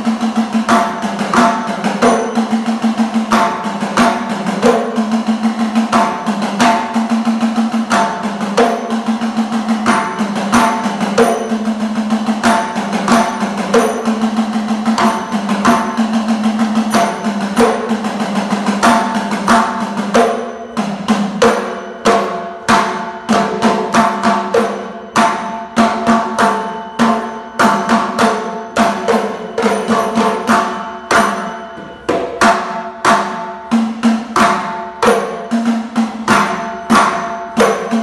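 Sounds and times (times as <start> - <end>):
pot drums played by hand: 0.0 - 38.0
steady ringing tone: 1.6 - 3.6, 8.1 - 23.9, 24.7 - 33.7.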